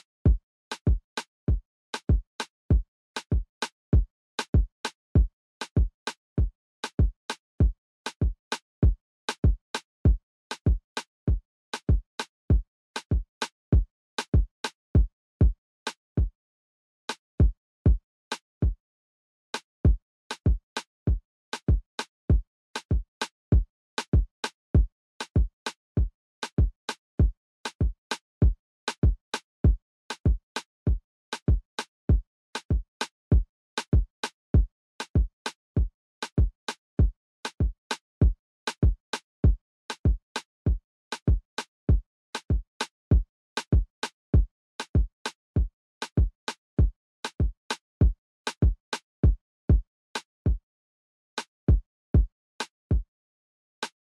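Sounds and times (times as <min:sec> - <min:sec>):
drum machine bass drum beat: 0:00.3 - 0:03.4, 0:04.0 - 0:13.2, 0:13.8 - 0:15.6, 0:17.4 - 0:18.0, 0:19.9 - 0:21.8, 0:22.8 - 0:25.5, 0:26.6 - 0:29.8, 0:30.9 - 0:31.6, 0:32.7 - 0:33.5, 0:34.6 - 0:35.3, 0:36.2 - 0:37.8, 0:38.8 - 0:40.1, 0:40.7 - 0:41.4, 0:42.5 - 0:43.8, 0:45.0 - 0:46.2, 0:46.8 - 0:47.5, 0:48.6 - 0:49.9, 0:51.7 - 0:52.3.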